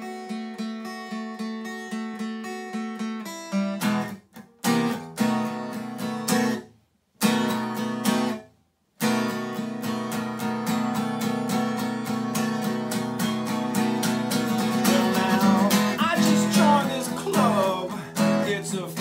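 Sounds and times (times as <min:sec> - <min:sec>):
acoustic guitar strumming blues: 0:00.0 - 0:19.0.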